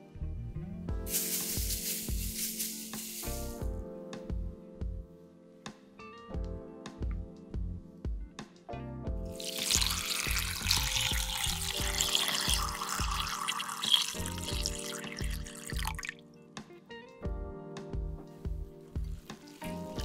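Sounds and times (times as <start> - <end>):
background music with steady beat: 0.0 - 20.0
water pouring into glass bowl: 9.4 - 16.2.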